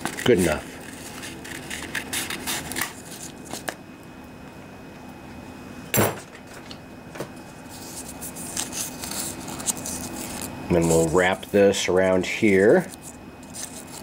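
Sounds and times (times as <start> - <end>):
sharp clunk: 5.9 - 6.3
scissors cutting sandpaper: 7.7 - 11.6, 12.4 - 14.0.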